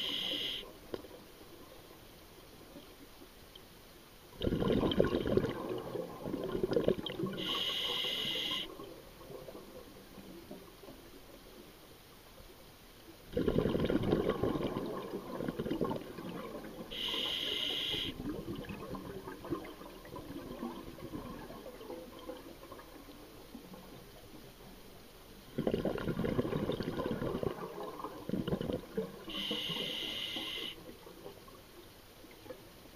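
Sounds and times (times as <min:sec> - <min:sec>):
regulator inhale hiss: 0:00.0 - 0:00.8, 0:07.4 - 0:08.7, 0:16.9 - 0:18.2, 0:29.3 - 0:30.8
regulator exhale bubbles rumbling: 0:04.4 - 0:09.8, 0:13.3 - 0:23.0, 0:25.5 - 0:31.1.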